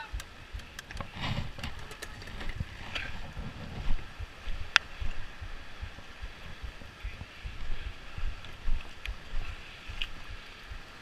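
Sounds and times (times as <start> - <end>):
sharp taps: 0.0 - 2.2
wind buffeting microphone: 0.0 - 11.0.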